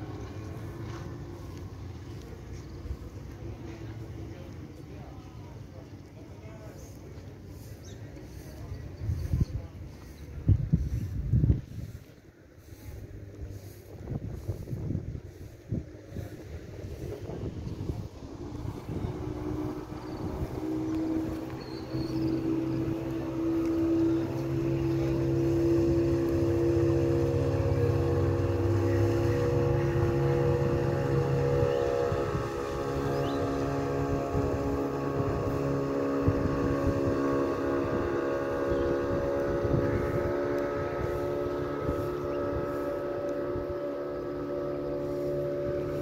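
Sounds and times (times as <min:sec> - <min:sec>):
motorboat engine running: 0:00.0 - 0:46.0.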